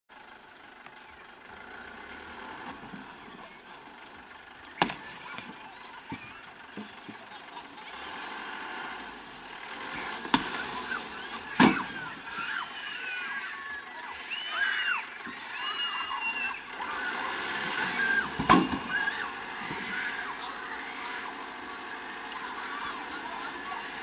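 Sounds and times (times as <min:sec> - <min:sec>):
insects droning: 0:00.1 - 0:24.0
faint voices: 0:00.2 - 0:24.0
high whistle-like tone: 0:07.8 - 0:09.2, 0:14.3 - 0:19.3.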